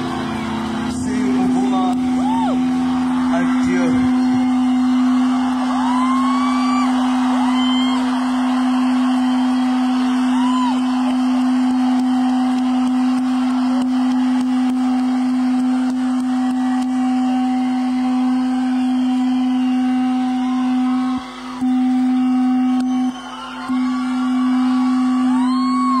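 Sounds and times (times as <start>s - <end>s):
concert crowd cheering: 0.0s - 26.0s
low note from sound system: 0.0s - 26.0s
people whistling: 0.2s - 26.0s.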